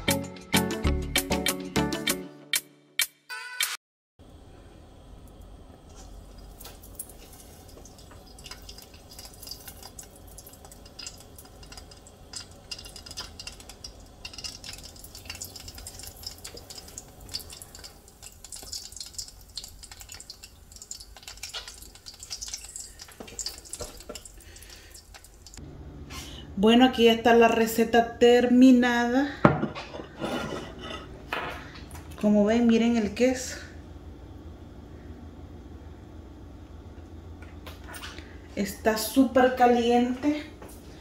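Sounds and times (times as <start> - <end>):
food sizzling in hot oil: 6.1 - 25.6.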